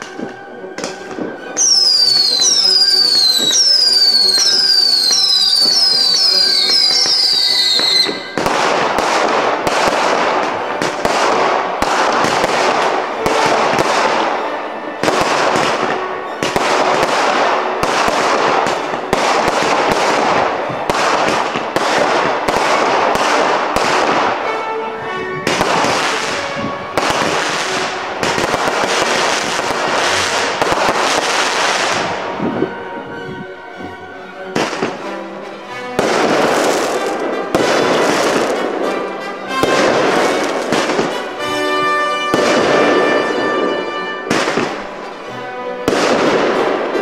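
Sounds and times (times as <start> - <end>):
whistling firework shots: 0.0 - 10.3
firework bangs and crackling: 0.0 - 47.0.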